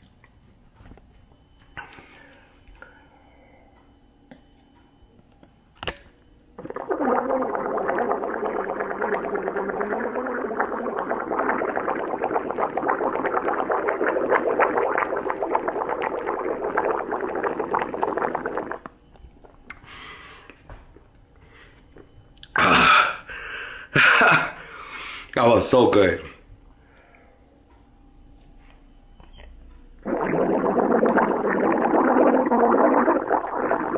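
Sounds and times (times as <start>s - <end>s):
man gargling: 6.6s - 18.9s, 22.4s - 23.3s, 30.0s - 33.9s.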